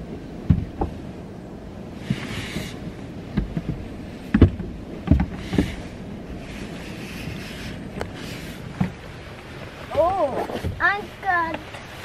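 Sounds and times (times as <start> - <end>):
soft thumps inside a car: 0.4 - 1.0, 2.0 - 5.8, 8.7 - 9.0.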